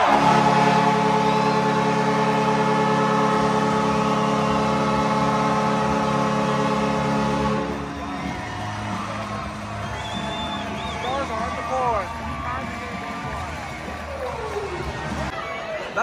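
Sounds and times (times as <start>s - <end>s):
arena goal horn blast: 0.0s - 11.6s.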